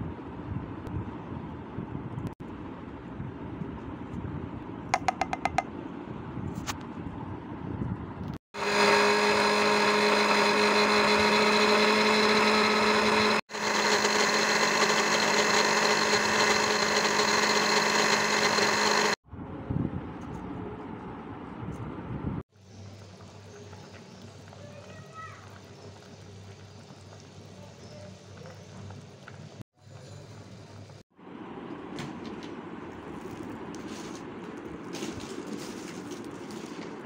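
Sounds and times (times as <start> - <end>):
mixer grinder motor humming: 8.6 - 19.2.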